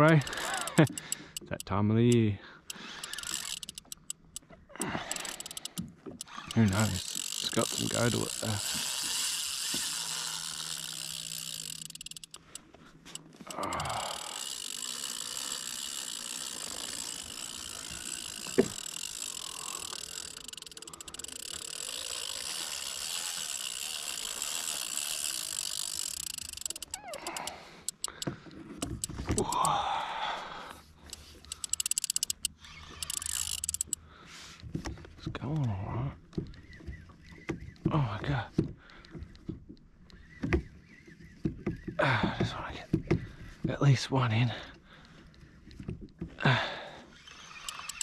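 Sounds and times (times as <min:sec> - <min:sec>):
fishing reel drag buzzing: 0:00.0 - 0:01.6, 0:02.6 - 0:29.8, 0:31.0 - 0:34.0, 0:47.0 - 0:48.0.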